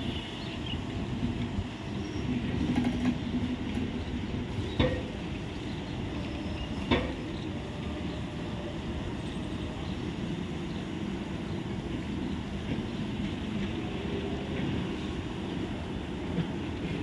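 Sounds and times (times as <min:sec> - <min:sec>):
train coaches rolling past: 0:00.0 - 0:17.0.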